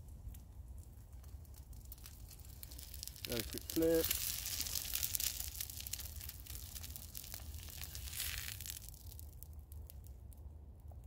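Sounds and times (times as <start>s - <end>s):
egg sizzling in a frying pan: 1.9s - 8.8s.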